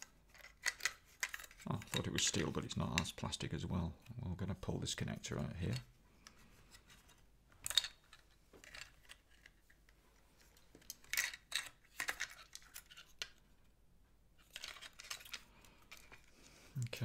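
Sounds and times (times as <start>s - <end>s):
plastic clicks and scrapes: 0.0s - 3.2s, 5.6s - 13.4s, 14.4s - 16.3s.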